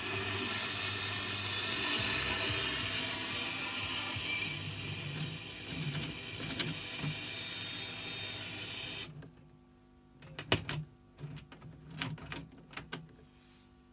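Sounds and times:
shortwave radio hiss: 0:00.0 - 0:09.1.

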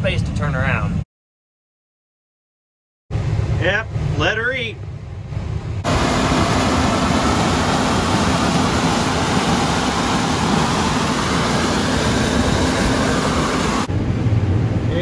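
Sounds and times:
combine harvester running: 0:04.9 - 0:14.9.

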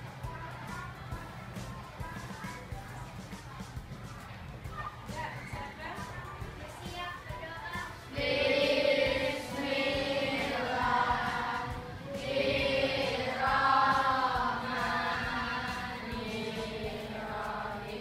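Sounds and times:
children singing in unison: 0:08.1 - 0:18.0.

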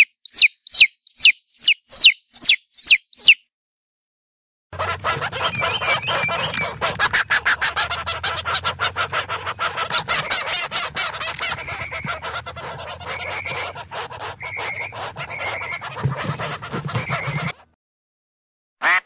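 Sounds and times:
hen clucking and squawking: 0:04.8 - 0:17.7.

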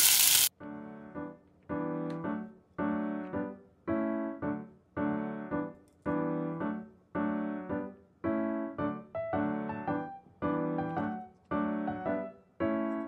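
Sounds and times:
piano chords: 0:00.5 - 0:13.0.

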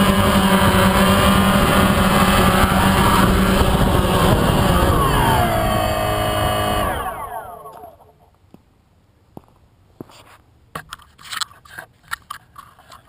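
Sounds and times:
drone motors winding down: 0:00.0 - 0:08.2
clicks and scrapes: 0:10.1 - 0:13.0.

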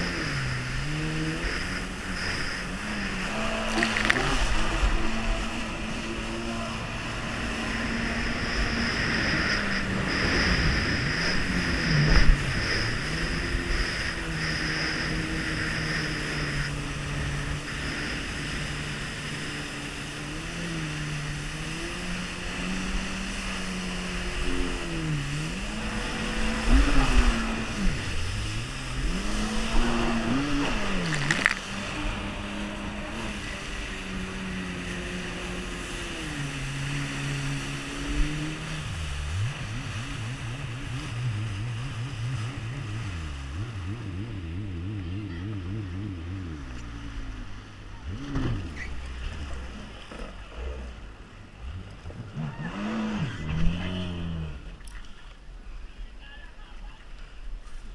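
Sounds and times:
jet ski engine revving: 0:00.0 - 0:56.1
rushing water: 0:00.0 - 0:57.9.

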